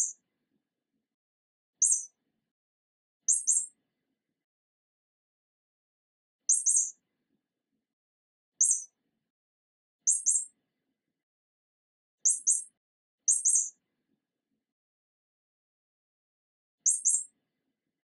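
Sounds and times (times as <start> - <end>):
mouse squeaks: 1.8 - 2.1, 3.3 - 3.8, 6.5 - 7.0, 8.6 - 8.9, 10.1 - 10.6, 12.2 - 13.8, 16.9 - 17.4.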